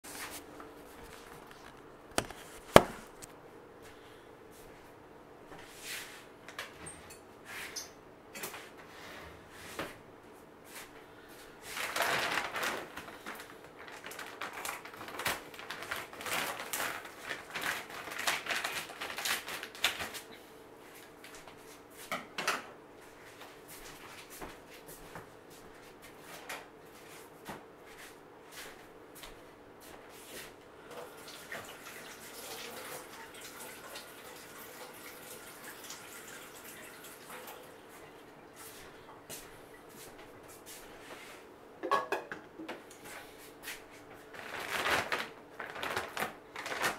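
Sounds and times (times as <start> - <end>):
plastic bag crackling: 11.7 - 20.3, 44.2 - 46.9.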